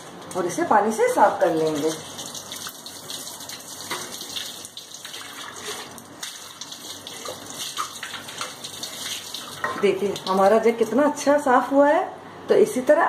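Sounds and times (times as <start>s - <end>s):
water spraying onto sink: 1.4s - 10.6s
tap water splashing over jug: 1.7s - 10.5s.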